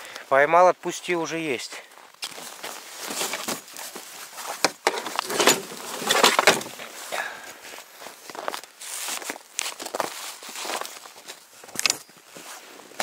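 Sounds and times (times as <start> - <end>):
footsteps crunching in snow: 1.8 - 13.0.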